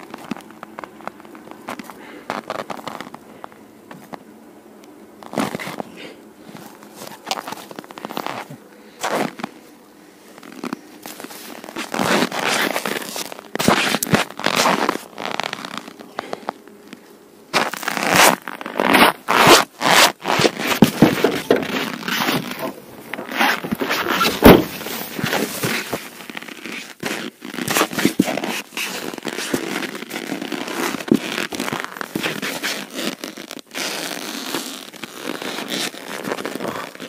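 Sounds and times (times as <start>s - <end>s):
boots crunching on snow: 0.0s - 3.2s, 5.2s - 9.7s, 10.3s - 37.0s
wooden scrapes and knocks: 18.9s - 26.1s.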